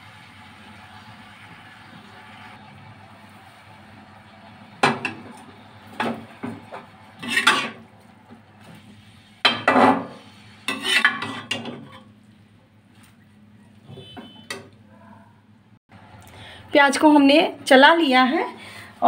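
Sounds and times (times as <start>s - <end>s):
metal spatula scraping a metal pan: 7.2s - 7.8s, 9.5s - 12.1s.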